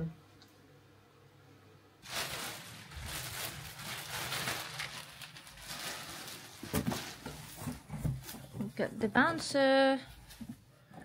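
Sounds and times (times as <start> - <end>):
packaging rustling: 2.0 - 8.6.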